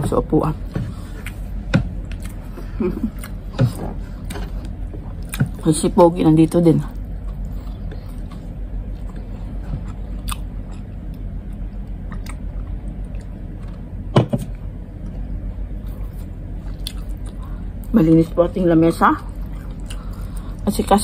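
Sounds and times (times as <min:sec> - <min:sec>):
steady low hum: 0:00.0 - 0:21.0
close-up chewing: 0:01.2 - 0:05.7, 0:06.9 - 0:13.9, 0:14.6 - 0:17.9, 0:19.3 - 0:20.7.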